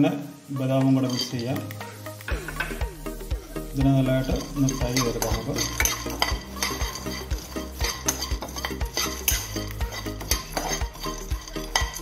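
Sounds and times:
background music with beat: 0.0 - 12.0
spatula scraping nuts in pan: 0.7 - 1.7, 4.1 - 12.0.

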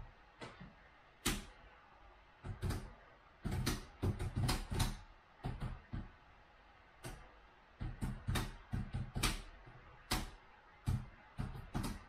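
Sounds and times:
laptop keyboard typing: 2.4 - 6.1, 7.8 - 12.0.

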